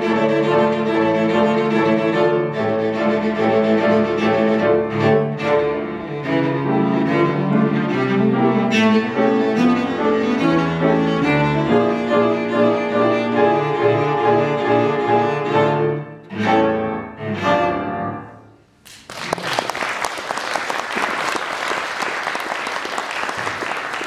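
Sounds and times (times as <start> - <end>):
cello and piano playing: 0.0 - 18.6
applause: 18.8 - 24.0.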